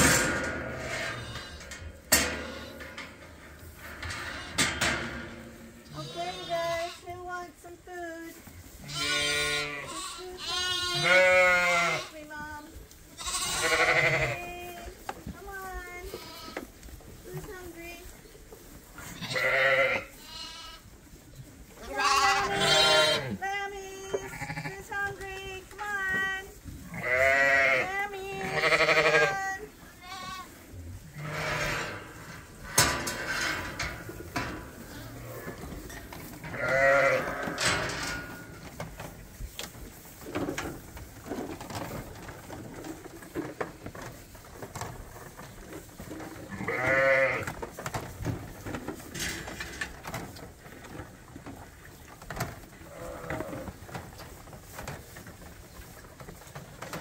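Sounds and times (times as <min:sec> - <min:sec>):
lambs bleating: 0:05.9 - 0:07.1, 0:08.8 - 0:12.1, 0:13.2 - 0:14.6, 0:16.1 - 0:16.6, 0:19.0 - 0:20.8, 0:21.8 - 0:23.4, 0:24.1 - 0:24.8, 0:26.9 - 0:30.6, 0:36.5 - 0:37.6, 0:46.5 - 0:47.5.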